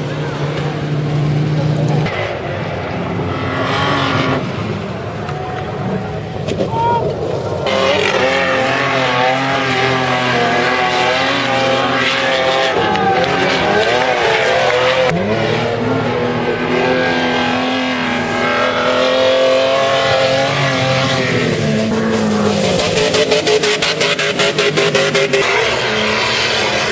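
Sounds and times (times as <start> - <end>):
car engine revving hard: 7.6 - 26.9.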